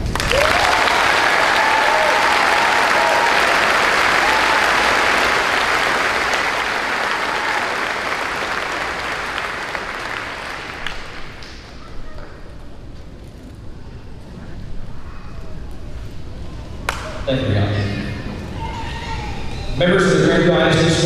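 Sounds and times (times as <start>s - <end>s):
audience applause: 0.0s - 11.8s.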